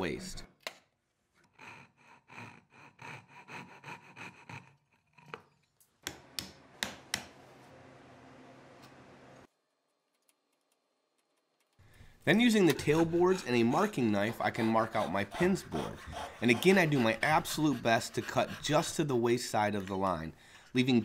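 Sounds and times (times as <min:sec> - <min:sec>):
saw cutting wood: 0:01.4 - 0:05.5, 0:12.4 - 0:19.9.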